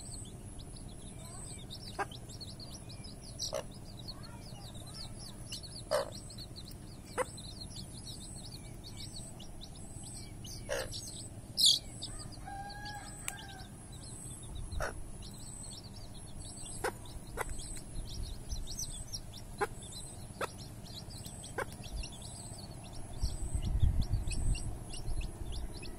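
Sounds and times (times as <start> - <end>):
chicks peeping: 0.0 - 25.9
hen clucking: 1.7 - 4.3, 5.0 - 8.8, 9.4 - 13.7, 14.4 - 15.5, 16.4 - 23.0
low rumble: 5.5 - 25.9.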